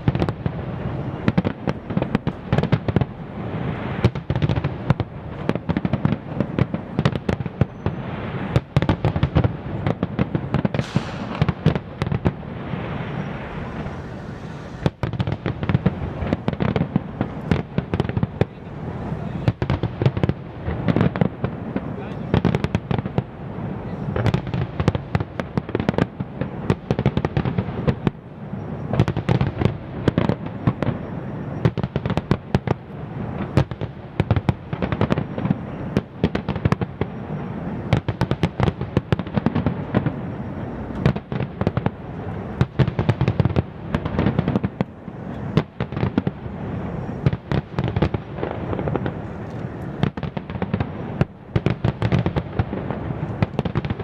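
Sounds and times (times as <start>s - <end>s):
fireworks bangs and crackles: 0.0s - 54.0s
low rumble: 10.8s - 16.3s.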